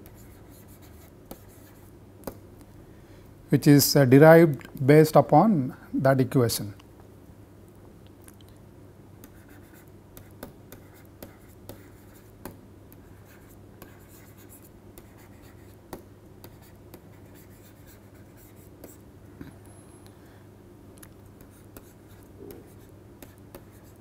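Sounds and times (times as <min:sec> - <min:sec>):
stylus tapping and scratching screen: 0:00.0 - 0:02.4, 0:09.2 - 0:19.0, 0:21.3 - 0:24.0
faint steady hum: 0:00.0 - 0:24.0.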